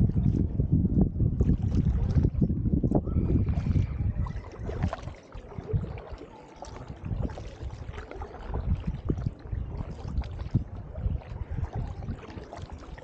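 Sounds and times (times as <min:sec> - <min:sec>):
low rumble: 0:00.0 - 0:05.0
paddle splashing in water: 0:01.4 - 0:13.0.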